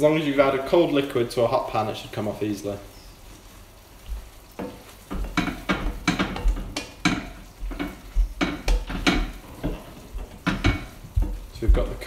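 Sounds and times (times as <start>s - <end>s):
sauce sizzling: 0.0s - 12.0s
wooden spoon scraping pan: 4.6s - 12.0s.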